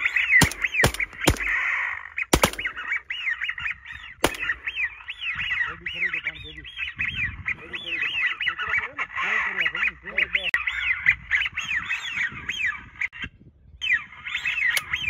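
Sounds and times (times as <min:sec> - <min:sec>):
whistled duck calls: 0:00.0 - 0:13.2
shotgun blasts: 0:00.3 - 0:03.0, 0:04.2 - 0:04.9.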